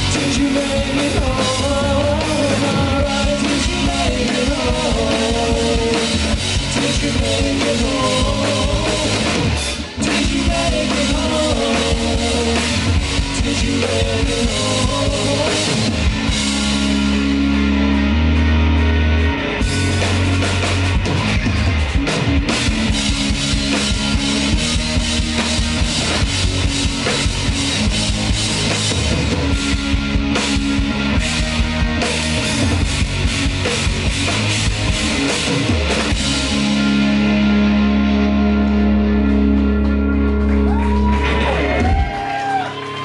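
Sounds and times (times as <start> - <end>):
bass guitar: 0.0 - 43.0
drum kit: 0.0 - 43.0
electric guitars: 0.0 - 43.0.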